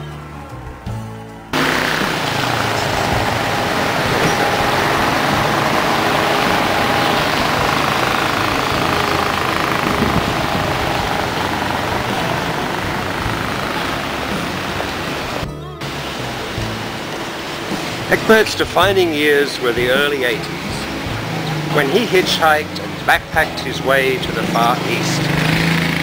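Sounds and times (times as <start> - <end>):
car and motorbike engines: 0.0 - 26.0
tyres on road: 0.0 - 26.0.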